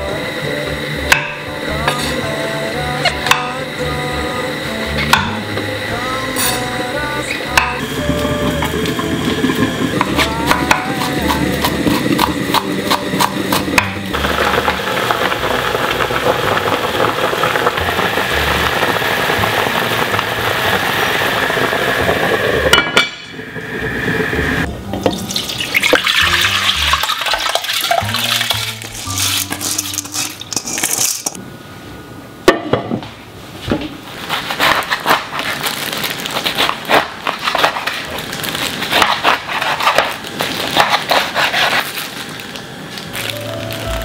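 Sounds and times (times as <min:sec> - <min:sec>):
pot bubbling: 0:07.4 - 0:31.4
rice pouring into pot: 0:25.3 - 0:31.0
knife slicing on cutting board: 0:40.7 - 0:41.8.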